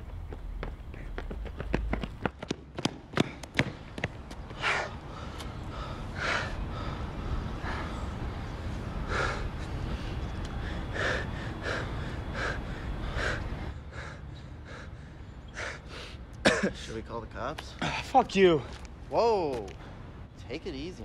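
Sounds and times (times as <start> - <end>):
men panting hard: 4.5 - 16.3.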